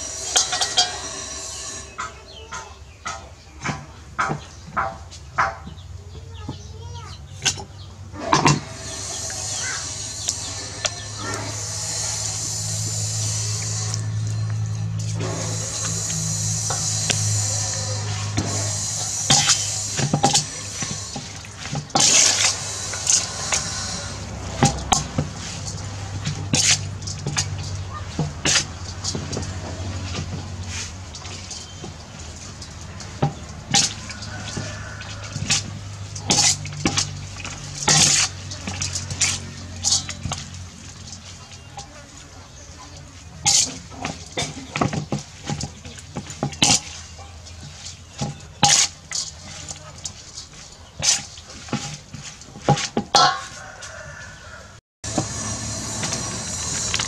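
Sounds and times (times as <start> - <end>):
metal ladle scraping a steel bowl: 0.0 - 2.4, 8.2 - 42.0, 43.4 - 54.3
low hum: 8.5 - 28.0, 55.1 - 57.0
wet noodles tossed: 8.9 - 54.0.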